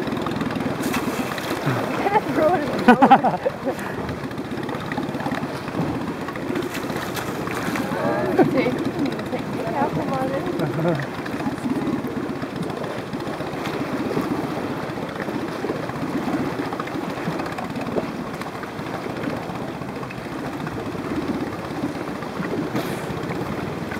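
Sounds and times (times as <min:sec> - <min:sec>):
boat motor idling: 0:00.0 - 0:23.9.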